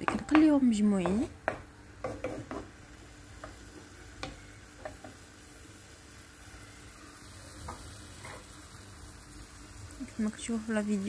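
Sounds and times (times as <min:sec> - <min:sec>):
spatula tapping a pan: 0:00.0 - 0:02.8, 0:03.4 - 0:05.2
vegetables sizzling in oil: 0:00.0 - 0:11.0.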